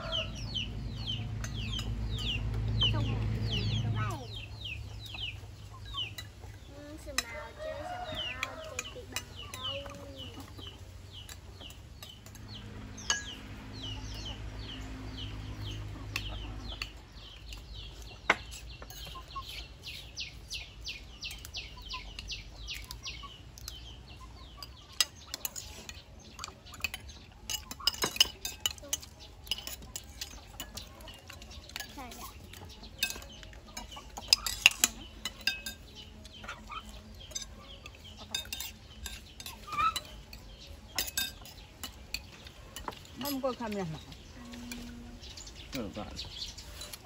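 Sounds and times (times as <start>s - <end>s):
chicks peeping: 0.0s - 47.0s
spoons clinking against dishes: 5.9s - 6.4s, 21.2s - 45.0s.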